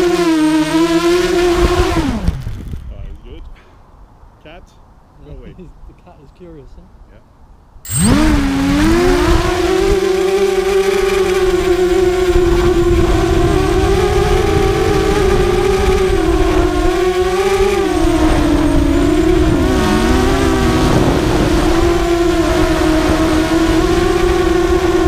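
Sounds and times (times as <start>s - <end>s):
drone motors whining: 0.0s - 2.7s, 7.9s - 25.0s.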